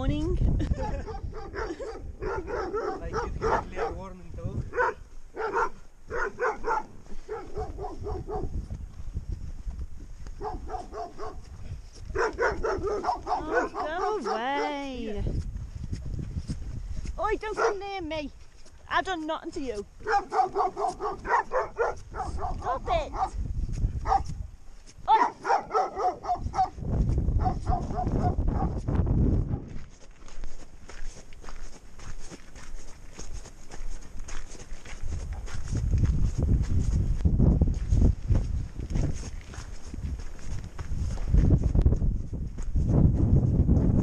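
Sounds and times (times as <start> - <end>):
dog yelping barks: 1.0 - 4.0, 4.7 - 8.5, 10.4 - 11.4, 12.1 - 14.8, 17.5 - 17.8, 20.0 - 23.4, 24.0 - 24.3, 25.1 - 26.8, 27.4 - 28.8.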